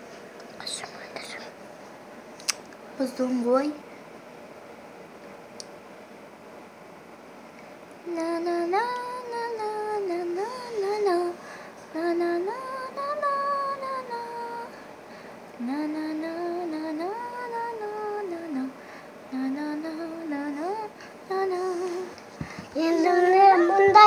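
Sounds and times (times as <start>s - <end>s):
person singing wordless tune: 8.0s - 14.7s, 15.6s - 22.2s, 22.8s - 24.0s.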